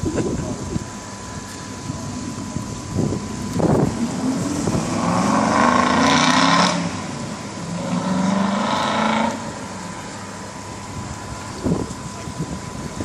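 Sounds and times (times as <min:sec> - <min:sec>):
boat engines running: 0:00.0 - 0:05.5, 0:09.3 - 0:13.0.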